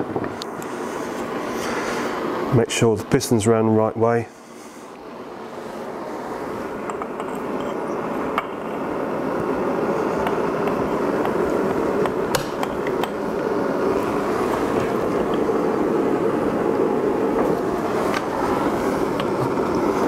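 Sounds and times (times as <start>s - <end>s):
steady rushing noise: 0.0s - 20.0s.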